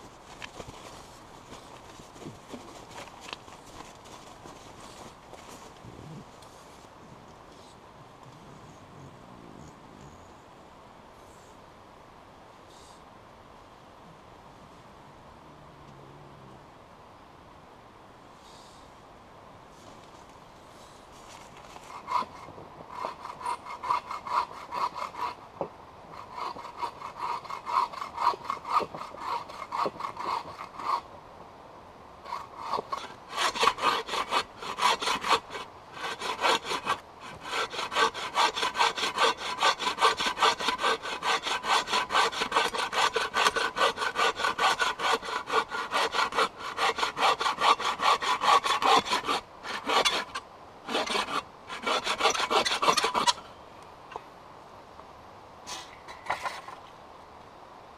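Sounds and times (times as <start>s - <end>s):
hand saw cutting log: 21.8s - 25.4s, 26.1s - 31.0s, 32.3s - 53.4s.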